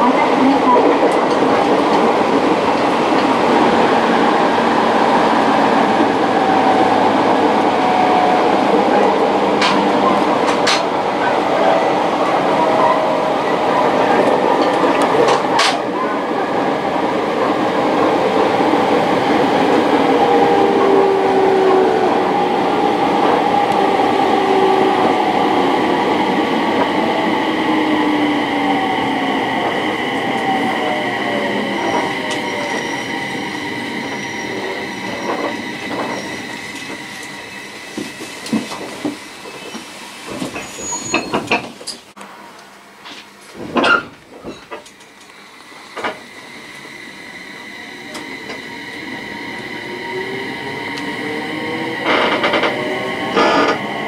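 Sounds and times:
electric train braking: 0:18.2 - 0:41.5, 0:44.6 - 0:54.0
high brake squeal: 0:30.6 - 0:37.8, 0:40.6 - 0:41.4.

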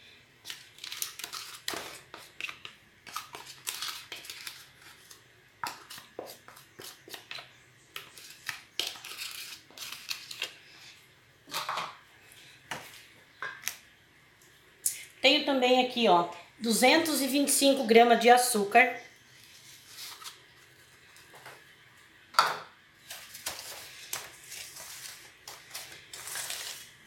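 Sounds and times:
wooden spoon scraping bowl: 0:08.0 - 0:10.5.

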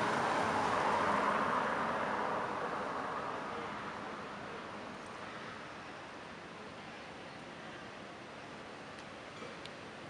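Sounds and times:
outdoor background hiss: 0:00.0 - 0:10.0.

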